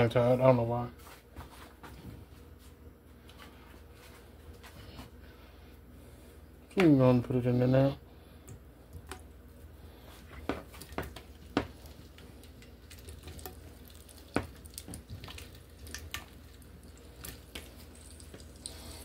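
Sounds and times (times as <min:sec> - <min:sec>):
sausage slices tapping on a pan: 0:10.4 - 0:11.8.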